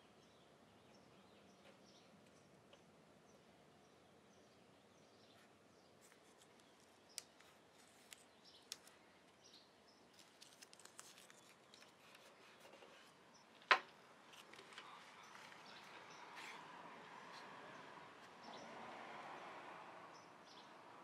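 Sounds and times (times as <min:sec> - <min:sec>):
tape being pulled and pressed: 0:10.2 - 0:12.8.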